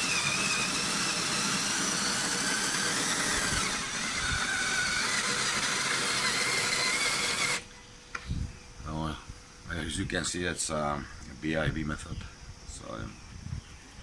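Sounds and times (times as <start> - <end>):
grain mill grinding: 0.0 - 7.7
motor whine: 0.0 - 9.0.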